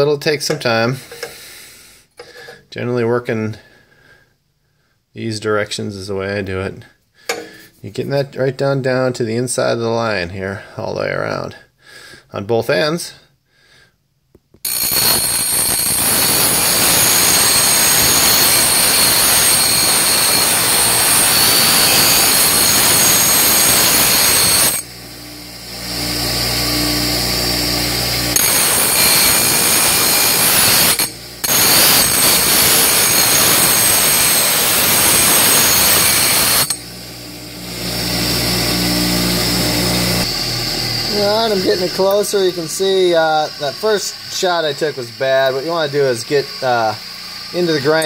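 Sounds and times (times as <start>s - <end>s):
grinder motor humming: 14.6s - 48.0s
grinder wheel grinding steel tube: 14.6s - 48.0s.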